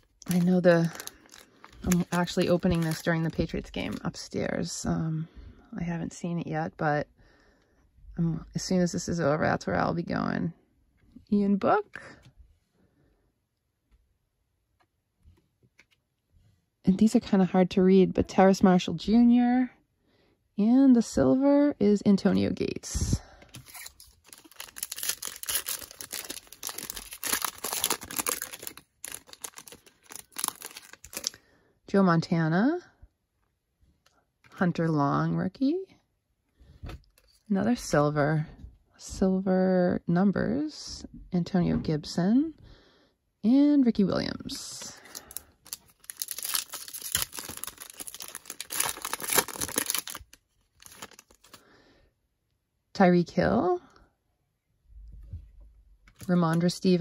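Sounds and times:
foil wrapper crinkling and tearing: 0.0s - 4.0s, 23.6s - 31.4s, 45.1s - 51.6s.

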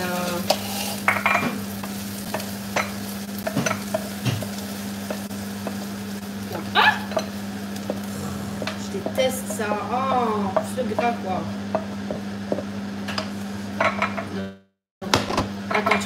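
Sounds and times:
courgettes sizzling in a frying pan: 0.0s - 14.0s
steady low hum: 7.6s - 12.2s.

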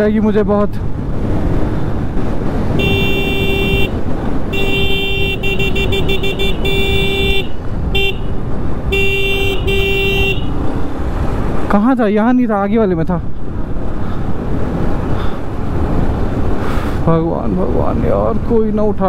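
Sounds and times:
wind rumble: 0.0s - 19.0s
motorcycle engine: 0.9s - 11.9s
vehicle horn honking: 2.8s - 10.6s.

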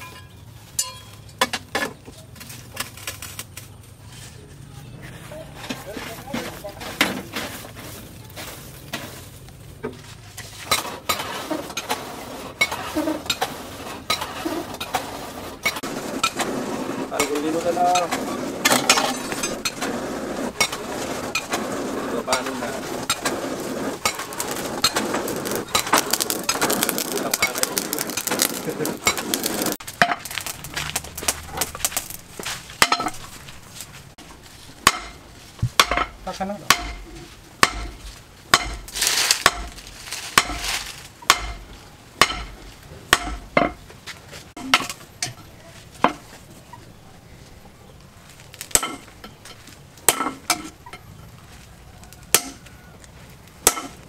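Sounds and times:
dense crackling clattering: 10.6s - 34.2s, 38.8s - 41.7s
hammer blows on hot steel: 34.8s - 43.8s.

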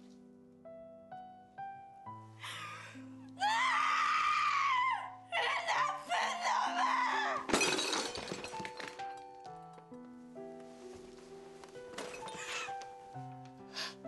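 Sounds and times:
soft music score: 0.0s - 3.7s, 9.0s - 14.0s
woman wailing and sobbing: 2.4s - 7.5s.

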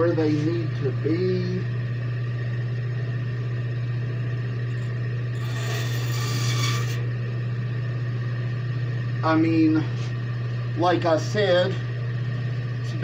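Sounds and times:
bandsaw motor humming: 4.5s - 7.7s
bandsaw blade cutting wood: 5.4s - 7.0s.

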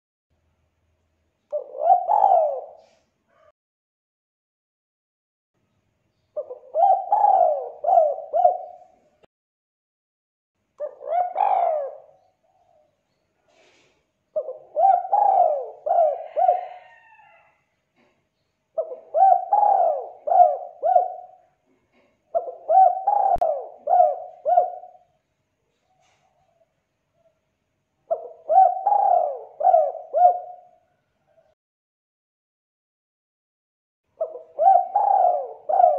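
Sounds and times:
dove cooing: 1.5s - 3.5s, 6.4s - 9.1s, 10.8s - 12.9s, 13.6s - 17.6s, 18.8s - 25.1s, 25.8s - 27.3s, 28.1s - 31.6s, 34.2s - 35.9s.

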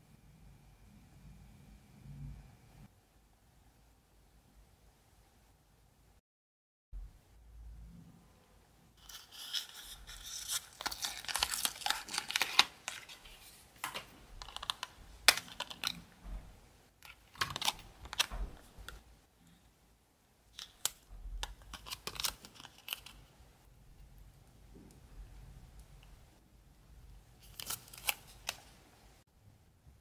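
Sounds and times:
paper crinkling and peeling: 9.0s - 16.0s, 20.6s - 23.2s, 27.4s - 28.7s
sharp paper crackles: 9.0s - 16.0s.

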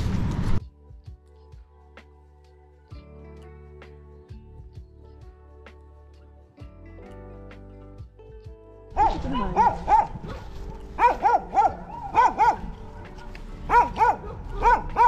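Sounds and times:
soft background music: 0.0s - 15.0s
dog barking: 9.0s - 15.0s.

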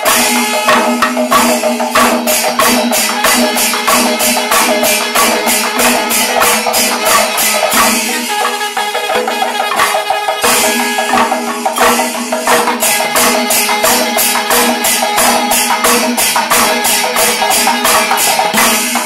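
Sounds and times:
cymbals clashing: 0.0s - 19.0s
hand drums playing: 0.0s - 19.0s.

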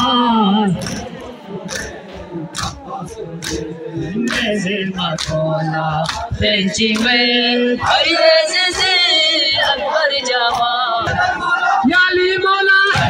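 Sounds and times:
men chanting in chorus: 0.0s - 13.0s
hands slapping chests: 0.8s - 5.4s, 6.0s - 6.3s, 6.9s - 7.2s.

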